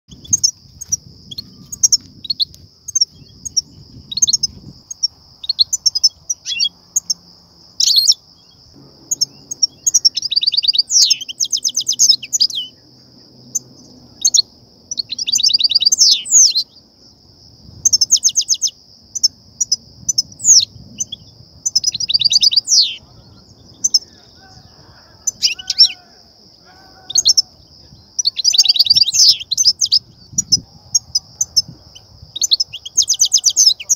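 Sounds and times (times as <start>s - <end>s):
steady high hiss: 0.5s - 26.6s
goldfinch twittering: 9.0s - 12.8s.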